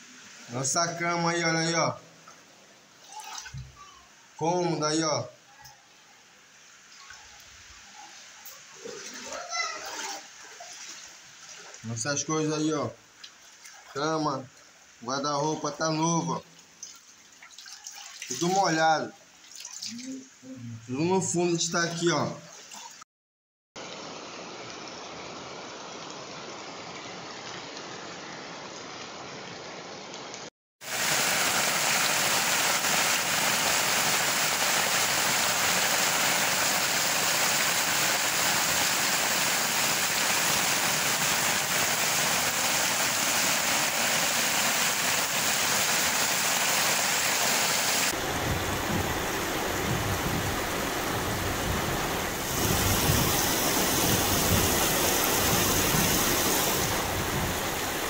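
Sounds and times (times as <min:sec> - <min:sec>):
heavy rain hissing: 0:00.0 - 0:03.0, 0:23.8 - 0:58.0
low uneven rumble: 0:48.2 - 0:56.0.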